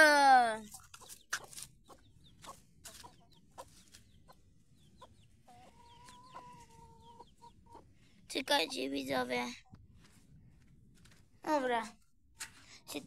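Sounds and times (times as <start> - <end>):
hen clucking: 0.7 - 9.4.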